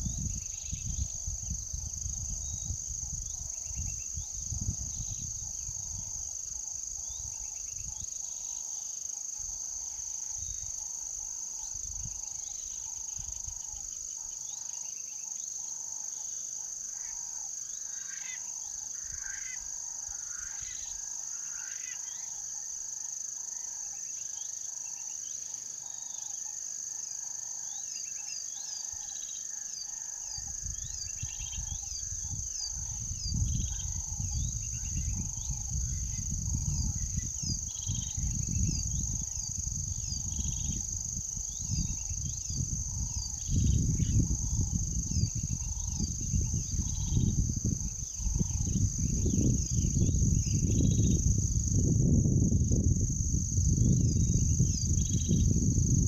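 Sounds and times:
wind rumble on microphone: 0.0s - 8.5s, 9.4s - 13.9s, 30.3s - 56.0s
high-pitched insect drone: 0.0s - 56.0s.

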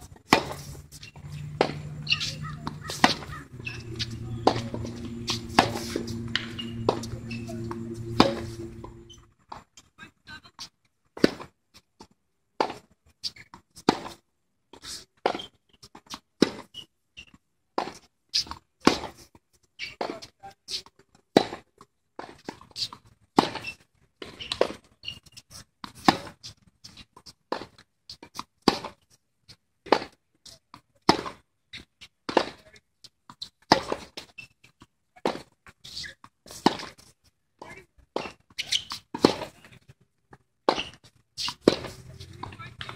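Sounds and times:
tennis ball struck by racket: 0.2s - 9.1s, 38.2s - 39.5s, 40.7s - 42.9s
tennis ball bouncing: 0.2s - 9.2s, 40.7s - 42.9s.

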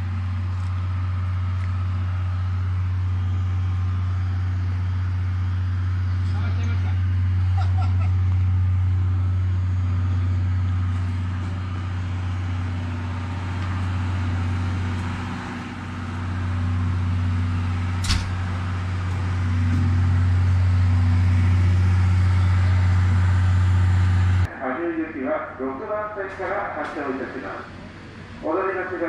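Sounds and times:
electric locomotive humming: 0.0s - 29.0s
sharp click: 18.0s - 18.4s.

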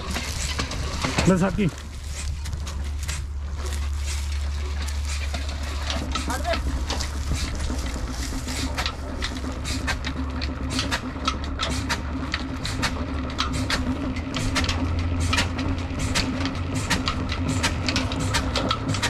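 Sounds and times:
diesel engine running: 0.0s - 19.0s
sharp clacks: 8.6s - 19.0s.

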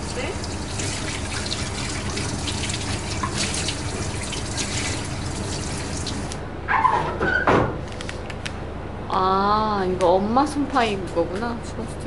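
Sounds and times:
tap water running into sink: 0.0s - 6.4s.

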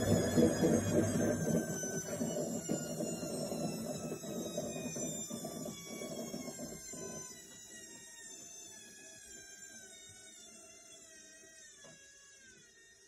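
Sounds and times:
washing machine spin rumble: 0.0s - 7.3s
washing machine motor whine: 0.0s - 13.0s.

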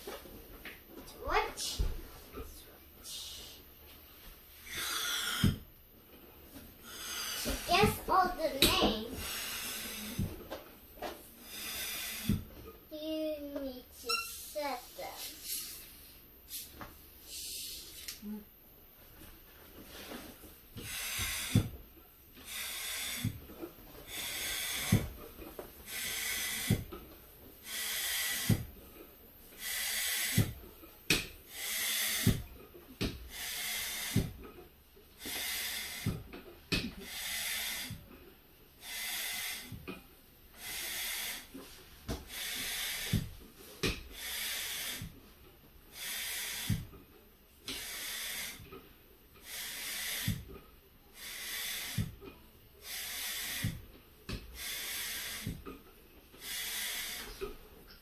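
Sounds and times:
hand pump air hissing: 4.6s - 5.6s, 6.8s - 10.3s, 11.4s - 12.5s, 14.0s - 16.7s, 17.3s - 18.2s, 20.8s - 21.7s, 22.4s - 23.4s, 24.0s - 25.2s, 25.8s - 27.0s, 27.6s - 28.7s, 29.5s - 32.4s, 33.1s - 34.4s, 35.2s - 36.4s, 37.0s - 38.0s, 38.8s - 39.8s, 40.6s - 41.6s, 42.2s - 43.4s, 44.0s - 45.2s, 45.9s - 47.0s, 47.7s - 48.7s, 49.4s - 50.5s, 51.1s - 52.2s, 52.8s - 53.8s, 54.5s - 55.8s, 56.4s - 57.6s.

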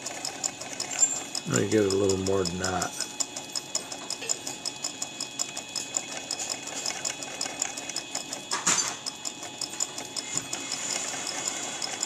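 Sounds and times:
grinder whining and ticking: 0.0s - 12.0s.

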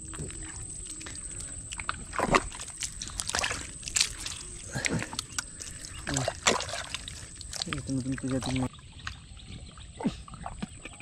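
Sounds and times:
wet mud squelching: 0.0s - 11.0s.

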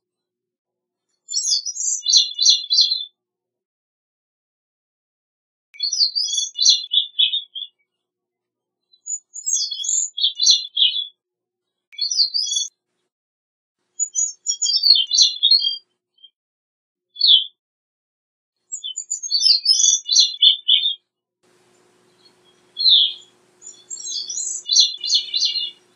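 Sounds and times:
thrush singing: 21.6s - 25.9s.

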